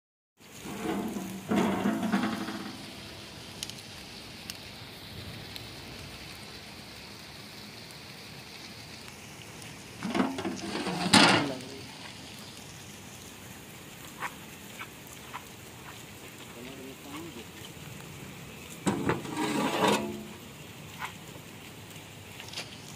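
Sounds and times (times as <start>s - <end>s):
steady hiss: 0.4s - 22.9s
metal lid clanking on pot: 0.6s - 3.2s, 10.0s - 11.5s, 18.8s - 20.4s.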